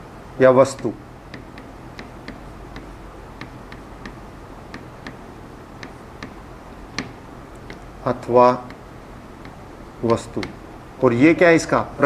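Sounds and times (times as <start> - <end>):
pen tapping on glass board: 1.3 - 10.6.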